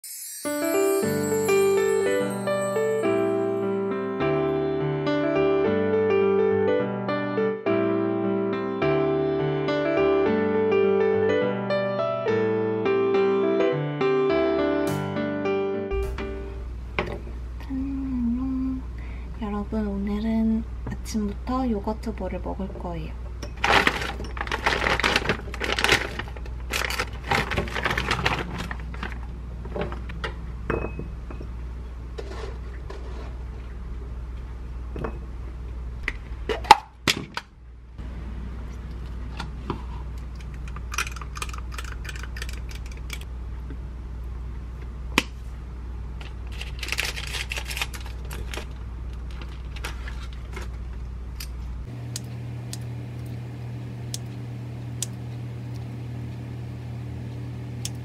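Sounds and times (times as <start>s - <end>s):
low steady hum: 15.9s - 58.0s
frozen berries rattling into strainer: 23.6s - 29.2s.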